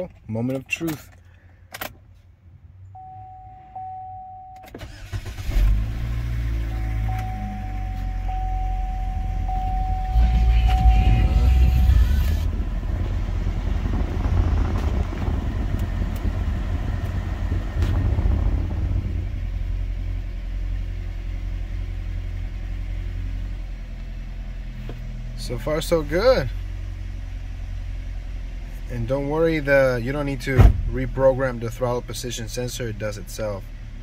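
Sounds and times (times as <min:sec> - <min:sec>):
car engine idling: 0:00.0 - 0:34.0
warning chime: 0:03.0 - 0:05.0, 0:06.6 - 0:12.0.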